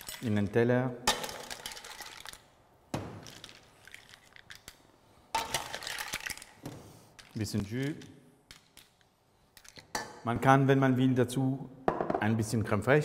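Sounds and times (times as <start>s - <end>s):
mussel shells clattering: 3.2s - 4.8s.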